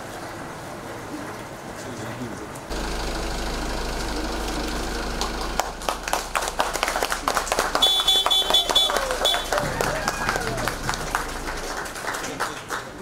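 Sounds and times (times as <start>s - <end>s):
low hum: 2.7s - 13.0s
people clapping: 4.4s - 13.0s.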